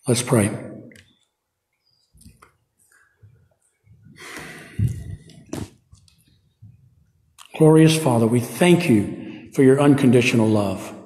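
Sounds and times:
clothing rustle on microphone: 4.8s - 6.8s.

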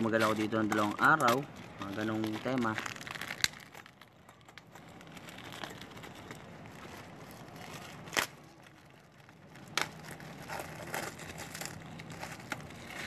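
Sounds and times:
plastic wrapping rustling: 0.0s - 13.0s.

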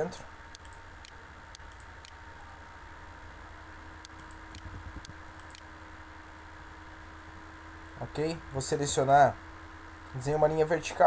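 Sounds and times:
low electrical hum: 0.0s - 11.0s
computer mouse clicks: 0.5s - 2.2s, 4.0s - 5.7s.

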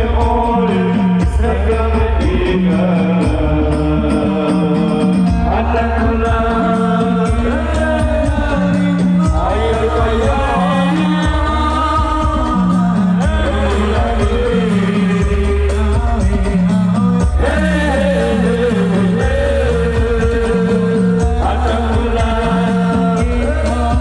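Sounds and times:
bass line: 0.0s - 24.0s
drum beats: 0.0s - 24.0s
man singing through pa: 0.0s - 24.0s.

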